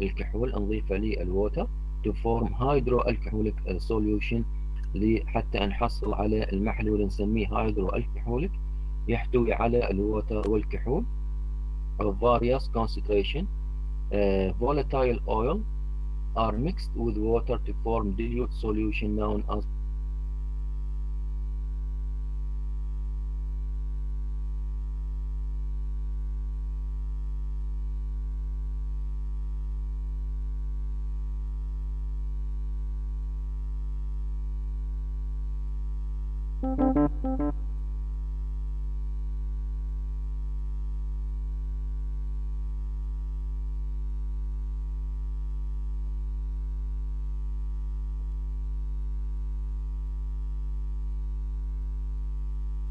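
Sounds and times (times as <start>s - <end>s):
electrical mains hum: 0.0s - 37.8s.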